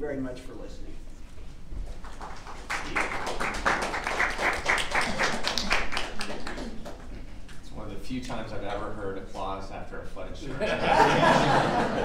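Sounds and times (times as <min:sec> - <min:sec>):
audience applauding: 0:02.0 - 0:07.2.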